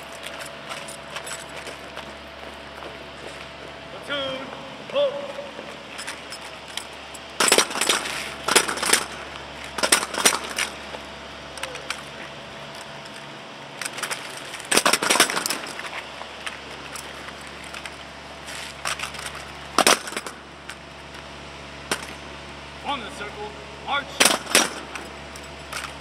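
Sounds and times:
drill rifles clacking: 4.0s - 21.2s.

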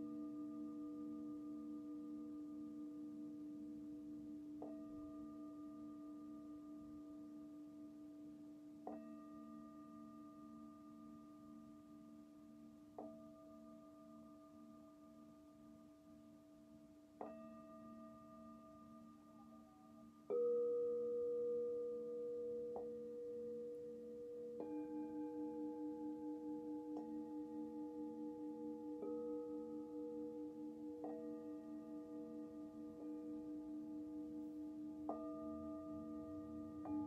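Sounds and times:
singing bowls humming: 8.8s - 37.0s.

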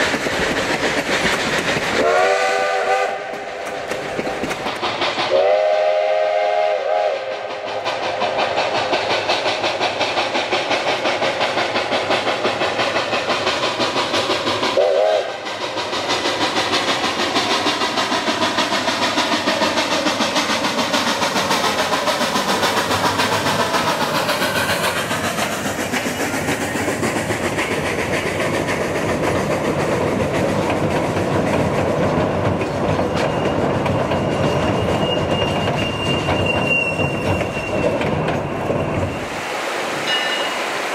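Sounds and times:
wheels clacking on rail joints: 0.0s - 6.2s, 7.3s - 39.4s
steam locomotive exhaust beat: 0.0s - 40.9s
steam whistle: 2.0s - 3.4s, 5.3s - 7.5s, 14.8s - 15.4s
high wheel squeal: 33.0s - 39.4s, 40.0s - 40.7s.

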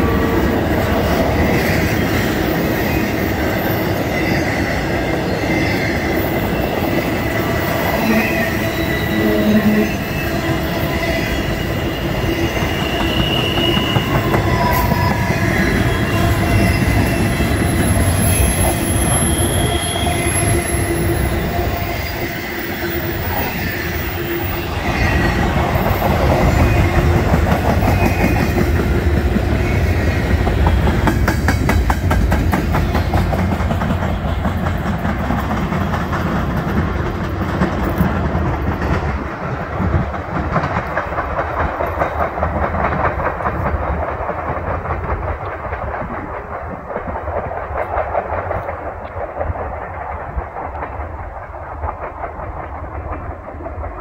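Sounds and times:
train wheels on rails: 0.0s - 54.0s
high wheel squeals: 1.4s - 27.1s.

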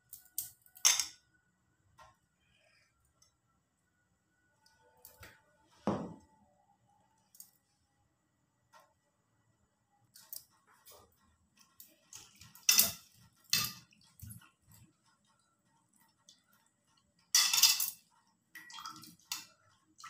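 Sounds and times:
knock: 5.8s - 6.2s
metal bowl clinking and clattering: 12.1s - 14.4s, 17.3s - 19.7s.

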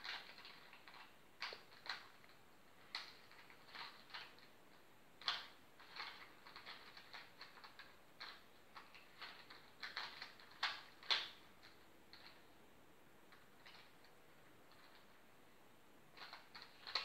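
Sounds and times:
puzzle cube clicking as turned: 0.0s - 2.3s, 2.9s - 4.5s, 5.2s - 12.4s, 16.2s - 17.0s.

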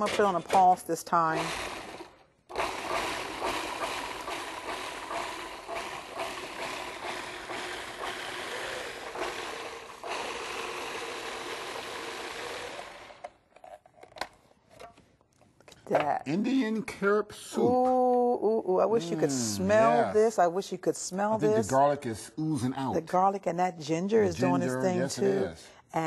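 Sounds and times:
food processor motor running: 1.4s - 13.3s.

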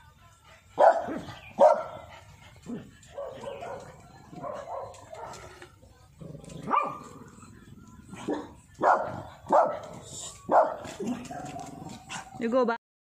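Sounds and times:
small dog barking: 0.8s - 1.9s, 3.2s - 5.4s, 6.7s - 7.1s, 8.3s - 9.8s, 10.5s - 11.1s.

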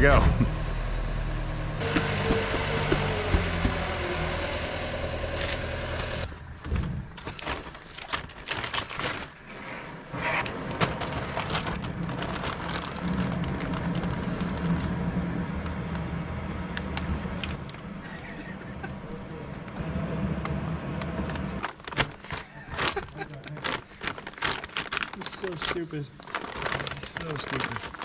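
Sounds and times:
low mechanical hum: 0.0s - 22.5s
plastic bags crinkling: 7.1s - 9.5s, 10.8s - 15.0s, 21.6s - 28.0s.

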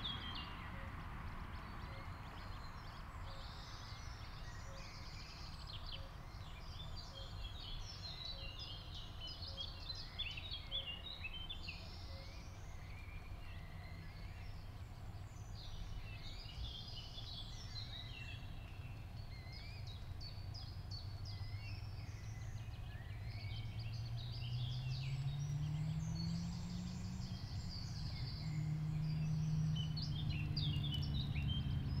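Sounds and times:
birds chirping: 0.0s - 32.0s
low outdoor rumble: 0.0s - 32.0s
low hum rising in pitch: 23.1s - 32.0s.

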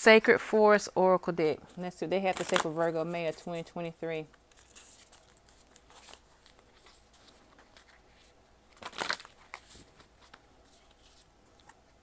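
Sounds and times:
cards rustling and sliding: 2.4s - 3.6s, 4.4s - 11.8s.

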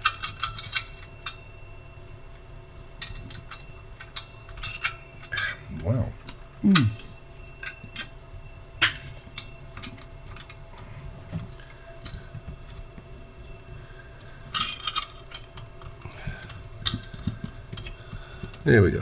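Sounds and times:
light metallic clinks: 3.0s - 10.7s.

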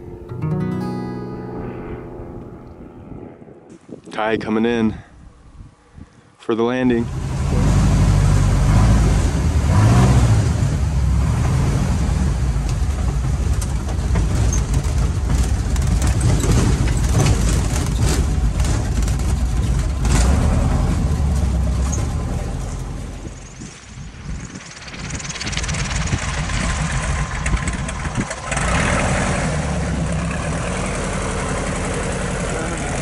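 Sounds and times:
plane engine and propeller: 7.0s - 33.0s
airframe knocks and rattles: 12.8s - 23.3s.

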